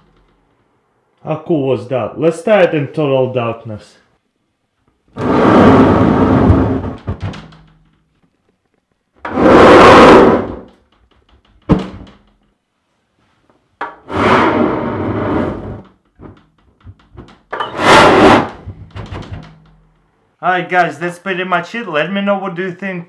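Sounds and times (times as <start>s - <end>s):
alcohol vapour igniting whoosh: 14.0s - 15.8s.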